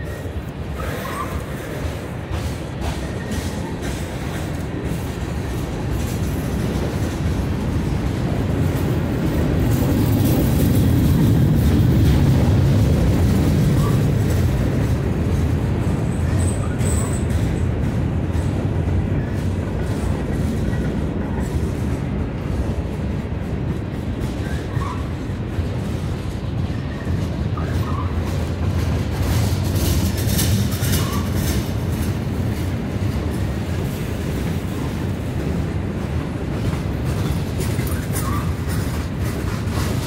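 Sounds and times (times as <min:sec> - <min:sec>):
high wheel squeal: 0:00.0 - 0:01.8, 0:37.8 - 0:38.8
train wheels rumbling on rails: 0:00.0 - 0:40.0.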